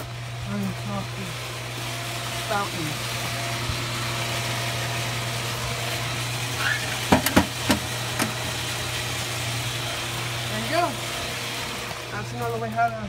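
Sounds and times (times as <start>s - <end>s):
pool pump motor humming: 0.0s - 13.0s
sharp clicks and knocks: 7.1s - 8.4s.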